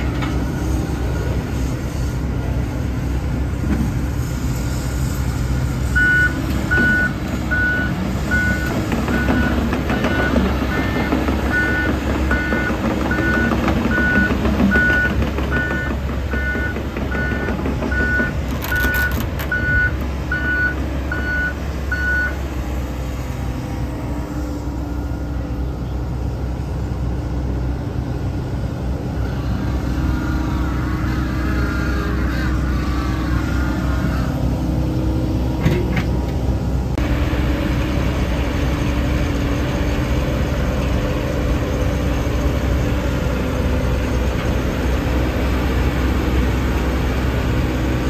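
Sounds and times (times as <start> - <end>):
excavator engine and hydraulics: 0.0 - 48.0
reverse alarm beeping: 6.0 - 22.4.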